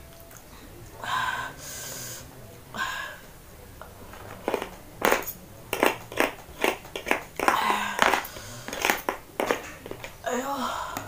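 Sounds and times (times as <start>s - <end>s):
cutlery scraping on plastic plate: 4.1s - 10.2s
chewing: 4.2s - 10.2s.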